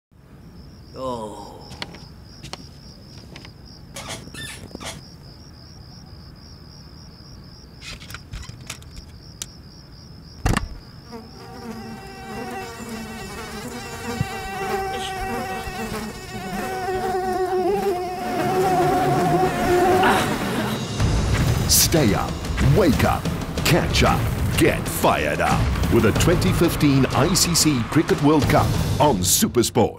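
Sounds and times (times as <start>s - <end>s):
mosquito whine: 10.9s - 21.0s.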